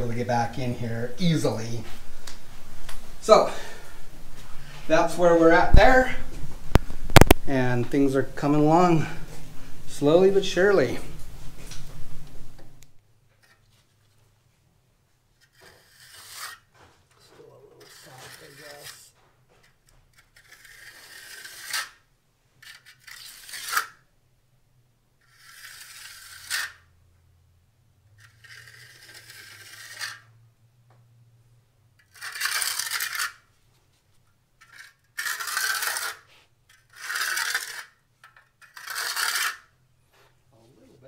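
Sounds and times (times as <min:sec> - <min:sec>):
trowel scraping wet concrete: 0:15.4 - 0:16.7, 0:17.7 - 0:19.2, 0:20.1 - 0:22.0, 0:22.6 - 0:24.0, 0:25.2 - 0:26.8, 0:28.2 - 0:30.3, 0:32.0 - 0:33.4, 0:34.6 - 0:39.7.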